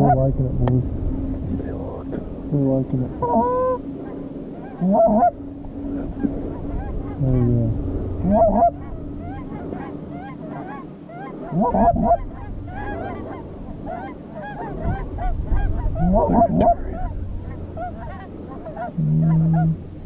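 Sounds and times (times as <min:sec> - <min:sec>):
geese honking and clucking: 0:00.0 - 0:00.4, 0:01.3 - 0:20.0.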